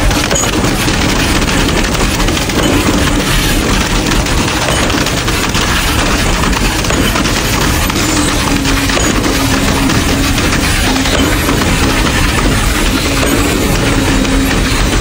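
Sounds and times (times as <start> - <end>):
pump engine hum: 0.0 - 15.0
wet concrete gushing clatter: 0.0 - 15.0.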